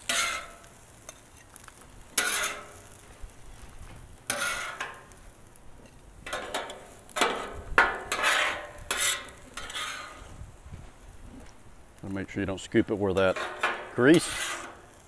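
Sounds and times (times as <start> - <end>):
metal spatula scraping griddle: 0.0 - 3.1, 3.7 - 5.2, 5.8 - 10.4, 13.1 - 15.0.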